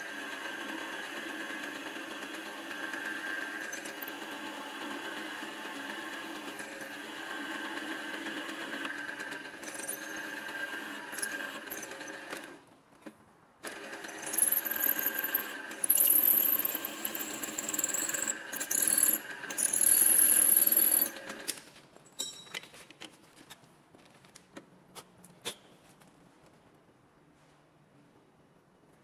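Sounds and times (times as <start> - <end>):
cutting tool squealing: 14.1 - 21.2.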